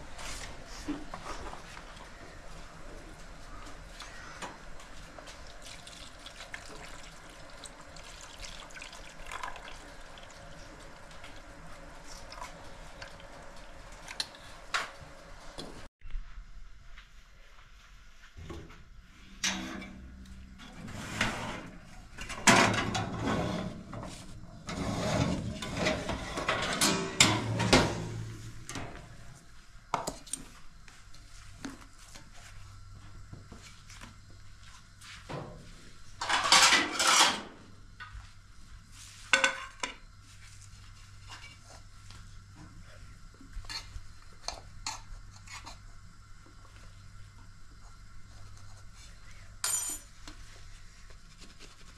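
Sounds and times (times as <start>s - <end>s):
pan scraping on stone countertop: 20.8s - 21.7s, 22.9s - 23.8s, 24.7s - 28.2s.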